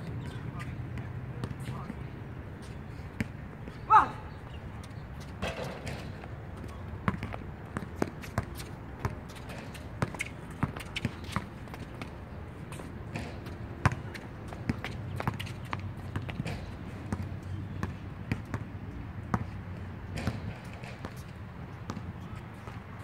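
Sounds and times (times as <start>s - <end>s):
basketball bouncing on hard court: 7.0s - 12.1s, 12.7s - 18.7s, 19.3s - 21.2s, 21.8s - 22.8s.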